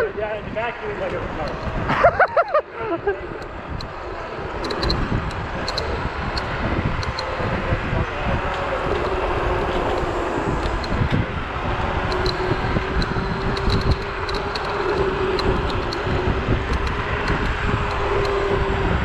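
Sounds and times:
scooter road noise: 0:00.0 - 0:19.0
wind buffeting microphone: 0:00.0 - 0:19.0
light ticks: 0:12.1 - 0:18.4.

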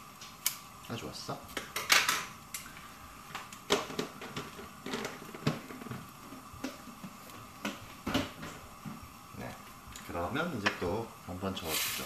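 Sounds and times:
faint steady hum: 0:00.0 - 0:12.0
kitchen things knocking and clicking: 0:01.6 - 0:02.3, 0:03.4 - 0:08.6.

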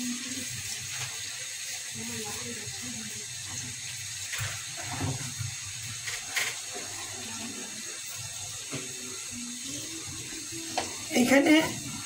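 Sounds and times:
food sizzling in oil: 0:00.0 - 0:12.0.

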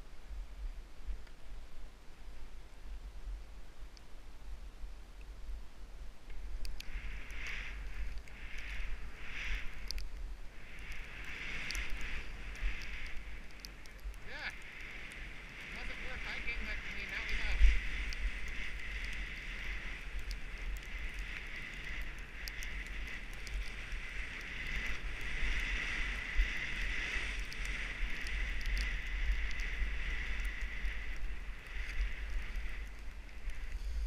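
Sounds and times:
wind rumbling on microphone: 0:00.0 - 0:34.0
faint clicks: 0:01.1 - 0:01.4, 0:03.9 - 0:04.2, 0:06.2 - 0:34.0
skis hissing over snow: 0:06.9 - 0:09.8, 0:10.4 - 0:34.0.

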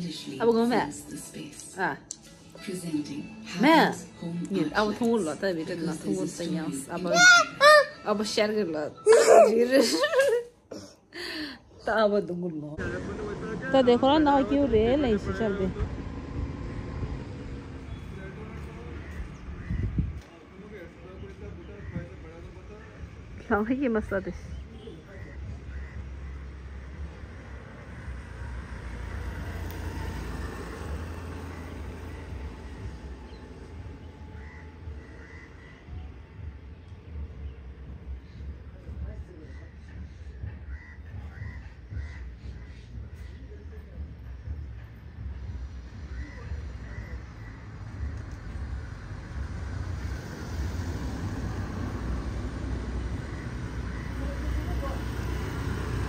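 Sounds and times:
traffic noise: 0:00.0 - 0:56.0
motor scooter approaching: 0:12.8 - 0:19.4, 0:26.4 - 0:35.0
car driving past: 0:12.8 - 0:19.8, 0:25.7 - 0:35.8, 0:45.2 - 0:56.0
crow cawing: 0:25.1 - 0:27.0, 0:34.3 - 0:36.2, 0:40.6 - 0:42.8, 0:46.1 - 0:47.7, 0:53.2 - 0:54.6.

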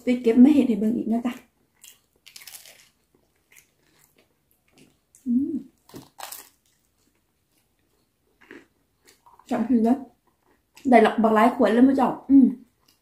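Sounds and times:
crunching toast: 0:01.7 - 0:09.4
person humming: 0:05.3 - 0:05.7.

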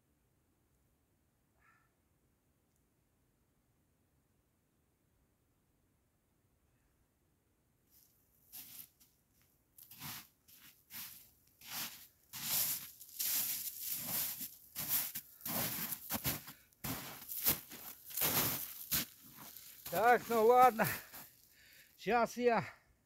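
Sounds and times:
footsteps crunching in snow: 0:07.9 - 0:09.1, 0:09.8 - 0:21.6.

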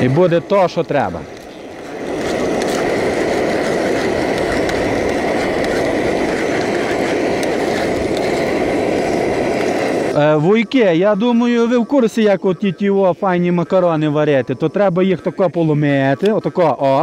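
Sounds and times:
food sizzling in a pot: 0:00.0 - 0:11.6.

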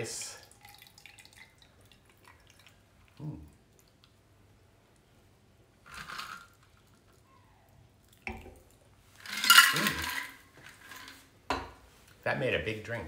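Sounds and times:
cocktail pouring over ice: 0:05.8 - 0:07.0, 0:09.2 - 0:11.2.

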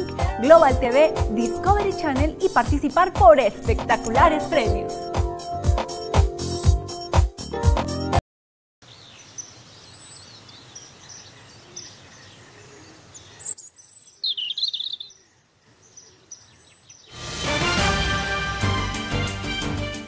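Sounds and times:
music: 0:00.0 - 0:08.2, 0:17.2 - 0:20.0
faint outdoor hiss: 0:08.8 - 0:17.2
birds chirping: 0:08.8 - 0:17.7.

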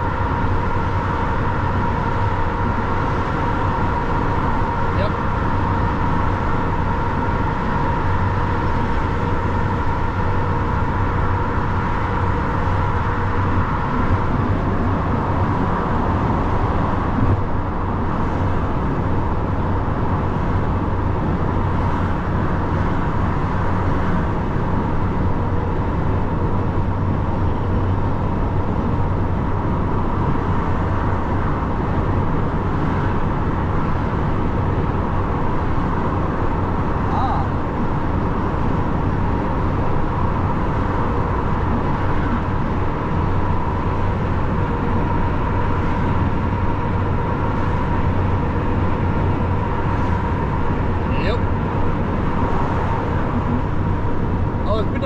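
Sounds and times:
truck engine drone: 0:00.0 - 0:55.0.

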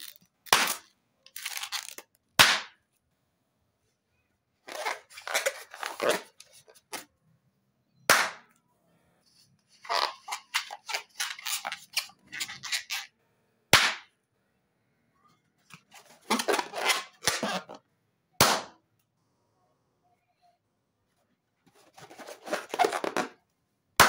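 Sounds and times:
balloons popping: 0:00.0 - 0:02.8, 0:08.1 - 0:08.5, 0:13.7 - 0:14.1, 0:16.0 - 0:17.8, 0:18.4 - 0:18.8, 0:22.4 - 0:23.4
rubber rubbing and squeaking: 0:04.6 - 0:07.0, 0:09.4 - 0:13.1, 0:15.9 - 0:17.8, 0:21.8 - 0:23.4.

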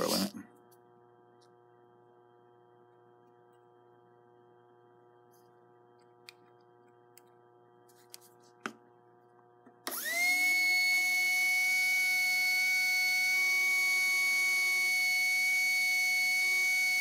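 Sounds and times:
motor armature whine: 0:09.8 - 0:17.0.

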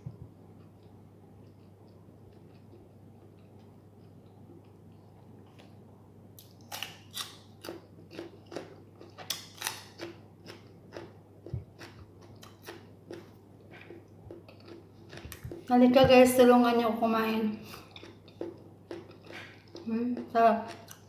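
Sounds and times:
crunching of raw cucumber: 0:06.4 - 0:15.6.

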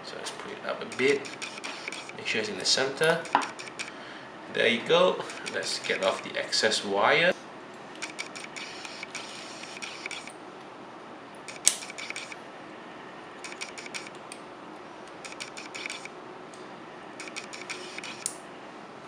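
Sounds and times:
wire cutters snapping wire: 0:00.9 - 0:02.2, 0:05.2 - 0:06.3, 0:11.5 - 0:12.4.

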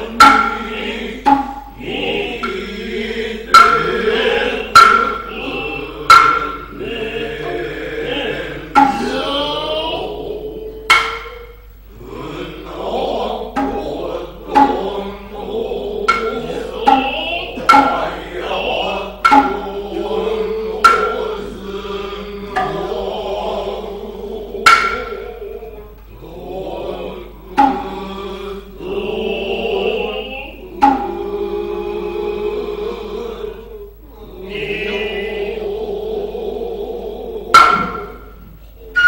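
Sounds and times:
hand drum strikes: 0:00.0 - 0:02.6, 0:03.5 - 0:05.4, 0:06.0 - 0:07.6, 0:08.7 - 0:09.3, 0:10.9 - 0:11.6, 0:13.5 - 0:14.9, 0:16.0 - 0:18.4, 0:19.1 - 0:21.6, 0:22.5 - 0:23.0, 0:24.6 - 0:25.4, 0:27.5 - 0:28.0, 0:30.8 - 0:31.2, 0:37.5 - 0:38.5.

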